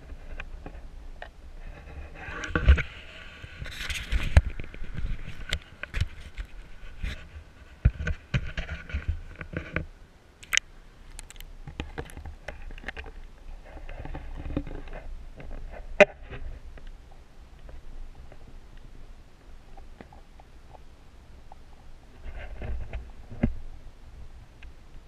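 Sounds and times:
clicks and bumps: 10.4 - 13.2
water sloshing against camera housing: 10.4 - 13.2.

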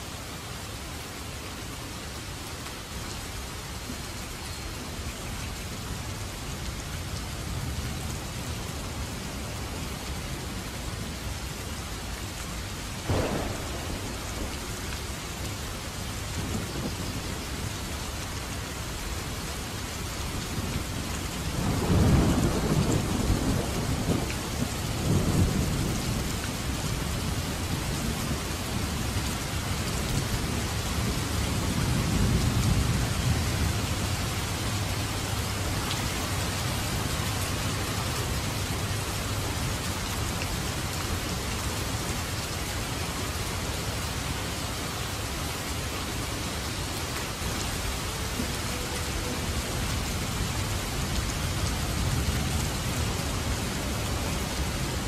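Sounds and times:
steady rain pattering: 0.0 - 55.0
low rolls of thunder: 13.0 - 17.3, 21.4 - 28.4.

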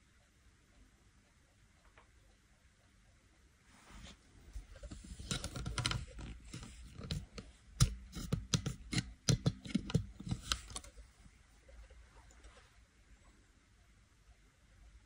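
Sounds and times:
small clicks and knocks: 4.8 - 11.0.

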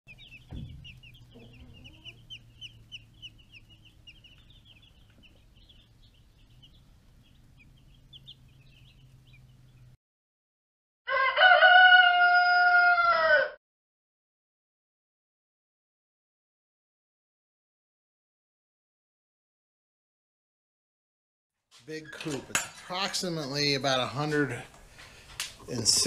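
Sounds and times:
chicks peeping: 0.1 - 10.0
low steady hum: 0.1 - 10.0
rooster crowing: 11.1 - 13.6.

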